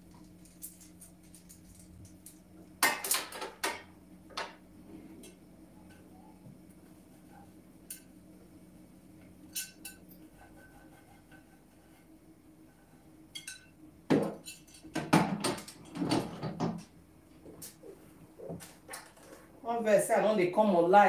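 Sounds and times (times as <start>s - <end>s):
kitchenware clattering: 2.8s - 4.6s, 13.3s - 16.9s
glass clink: 13.4s - 13.7s.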